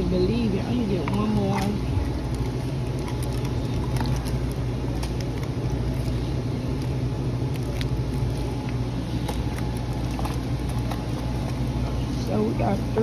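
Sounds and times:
low store rumble: 0.0 - 13.0
plastic packages crinkling: 1.7 - 11.9.

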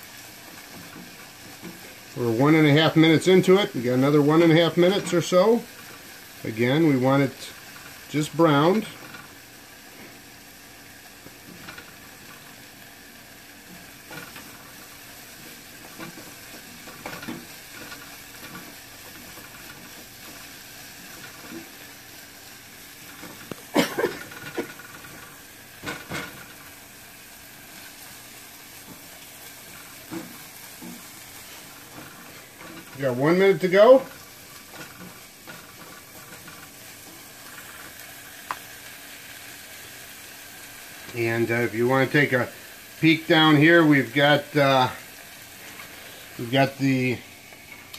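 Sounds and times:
onions sizzling in butter: 0.0 - 47.9
spatula scraping and tapping pan: 13.6 - 22.0, 28.8 - 33.0, 34.1 - 38.7.

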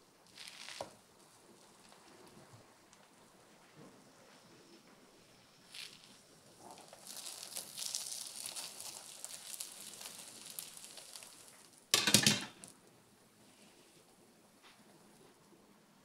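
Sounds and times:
bread sizzling in butter: 0.2 - 3.4, 5.2 - 12.7.

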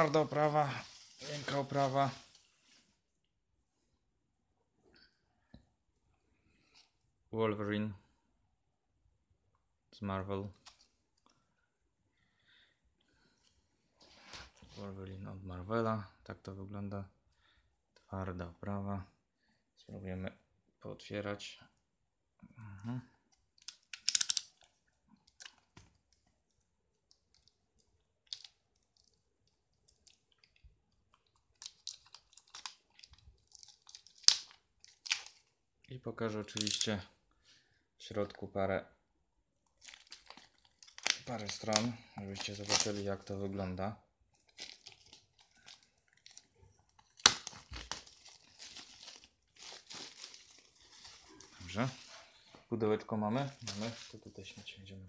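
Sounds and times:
shrink-wrap crinkling: 0.0 - 2.8, 29.8 - 35.5, 39.7 - 43.4, 44.3 - 52.2, 53.4 - 54.6.

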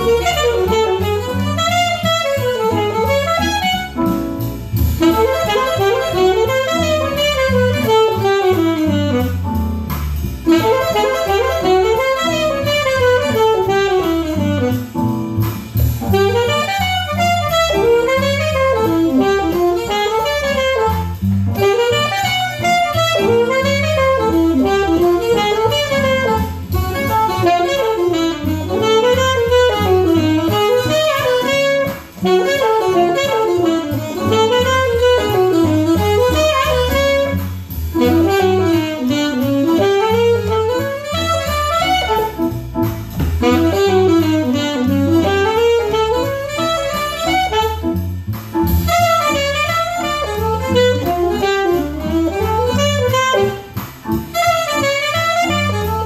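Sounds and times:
alto saxophone playing jazz: 0.0 - 56.0.

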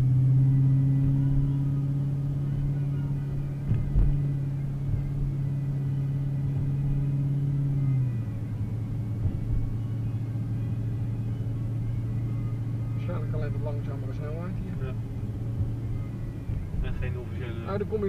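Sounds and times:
car engine hum: 0.0 - 18.0
low bumps: 0.0 - 18.0
road rumble: 0.0 - 18.0.

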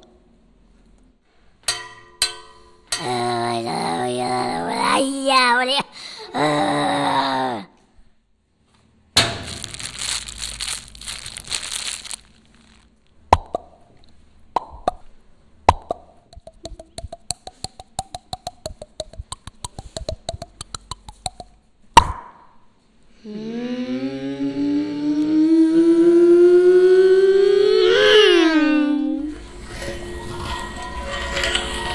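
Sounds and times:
flatbread crackling and crunching: 9.2 - 13.0
sharp snaps: 15.7 - 22.5
rapid small clicks: 16.3 - 21.5.

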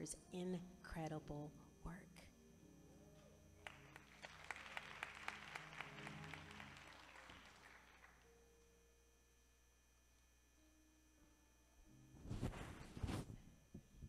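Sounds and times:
audience applause: 3.6 - 8.3.

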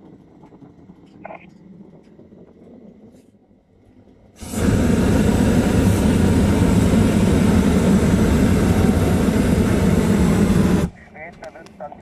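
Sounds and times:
propane burner blast: 4.3 - 11.0.

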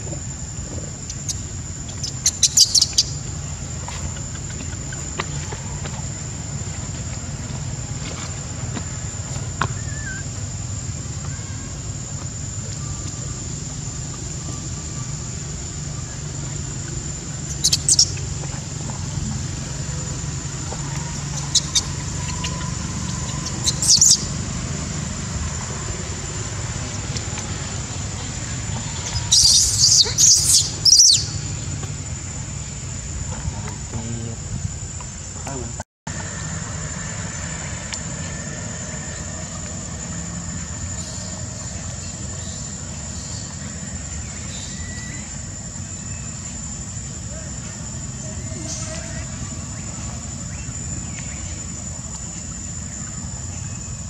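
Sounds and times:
steady low rumble: 0.0 - 54.0
faint chirps: 0.9 - 5.8, 9.6 - 10.4, 11.1 - 31.8
infant monkey squealing: 2.0 - 3.2, 9.7 - 10.2, 21.0 - 24.3, 28.8 - 31.4.

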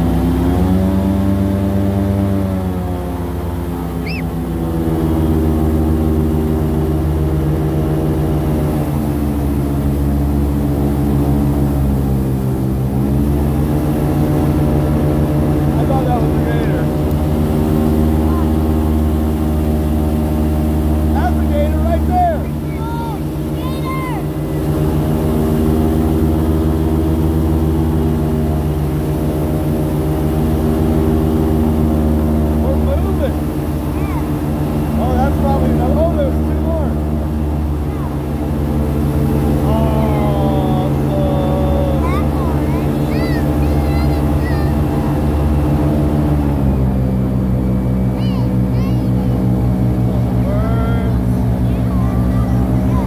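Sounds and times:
airboat engine droning: 0.0 - 53.0
short high chirp: 4.0 - 4.3.

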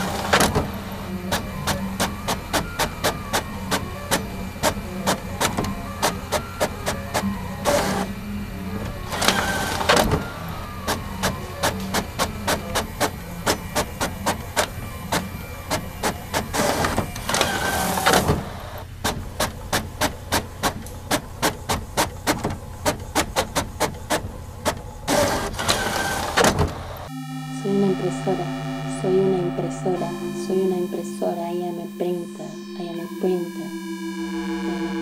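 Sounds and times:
printer rushing: 0.0 - 27.1
printer low hum: 0.0 - 35.0.

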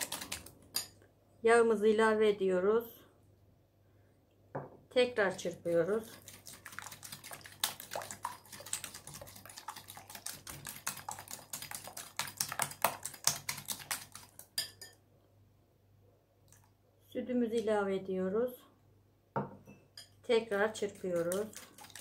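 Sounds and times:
whisk clicking against glass bowl: 0.0 - 0.9, 6.0 - 15.0.

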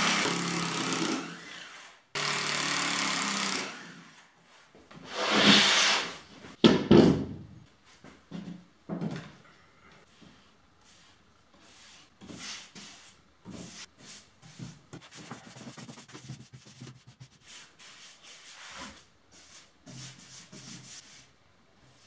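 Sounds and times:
brush scrubbing and swishing: 10.8 - 21.3.

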